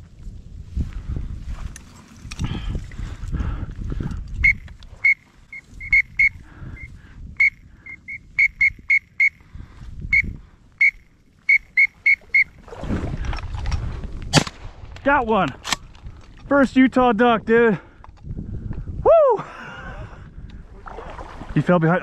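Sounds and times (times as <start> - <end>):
duck call whistle peeps: 4.4 - 9.4, 10.1 - 12.6.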